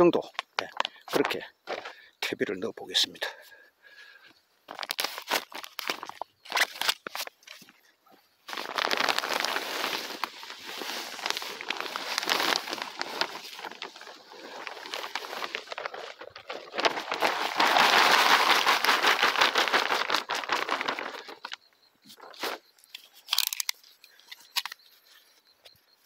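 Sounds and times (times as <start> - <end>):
plastic sack crinkling: 4.7 - 7.3, 8.5 - 21.6
manure pouring onto soil: 8.5 - 21.0.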